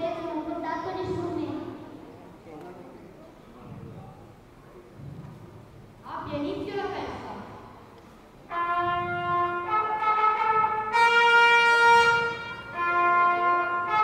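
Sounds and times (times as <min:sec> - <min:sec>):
wind instrument slow melody: 0:08.4 - 0:14.0.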